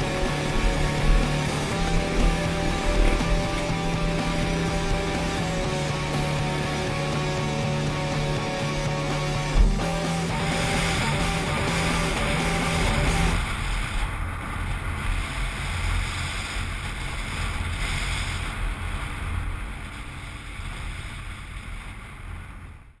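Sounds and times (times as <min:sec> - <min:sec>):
soundtrack music: 0:00.0 - 0:13.4
motorcycle engine rumble: 0:00.0 - 0:22.9.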